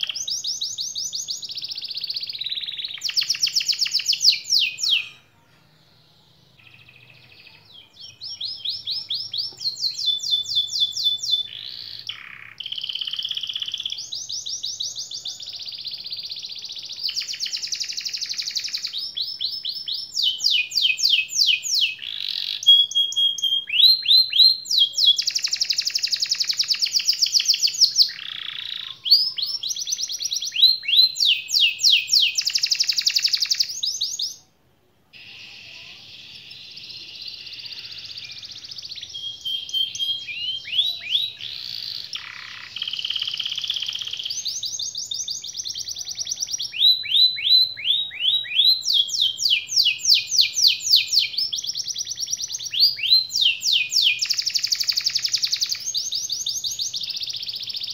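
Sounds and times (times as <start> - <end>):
canary singing trills: 0.0 - 34.5, 35.1 - 57.9.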